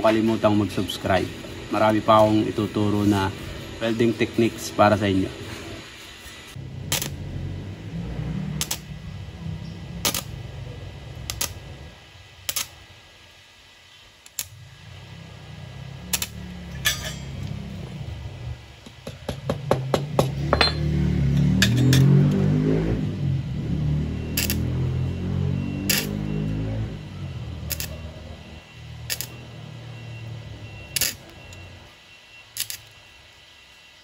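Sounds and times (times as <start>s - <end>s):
welding arc crackling and popping: 6.2s - 20.4s, 23.7s - 31.9s, 32.5s - 33.1s.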